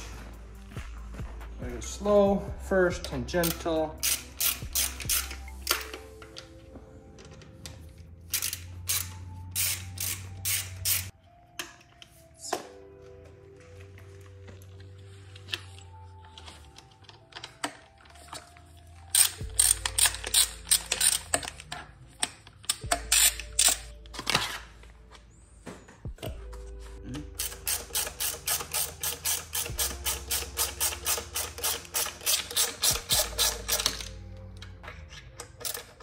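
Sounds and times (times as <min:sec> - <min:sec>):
background music with sustained tones: 0:00.0 - 0:36.0
ratchet driver clicking: 0:03.4 - 0:06.0, 0:19.1 - 0:21.6, 0:22.2 - 0:23.9, 0:27.4 - 0:34.2.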